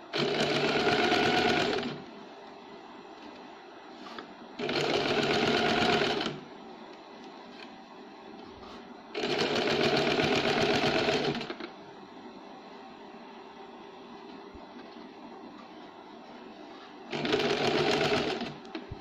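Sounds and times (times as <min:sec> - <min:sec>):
electric sewing machine running: 0:00.1 - 0:02.0, 0:04.6 - 0:06.4, 0:09.1 - 0:11.6, 0:17.1 - 0:18.6.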